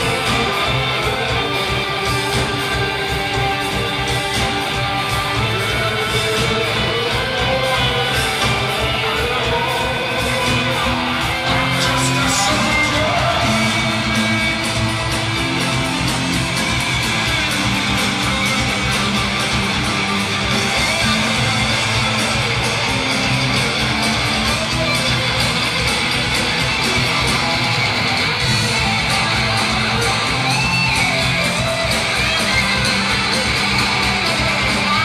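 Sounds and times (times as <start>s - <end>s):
person singing: 0.0s - 15.6s
bass and drums: 0.0s - 35.0s
electric guitars: 0.0s - 35.0s.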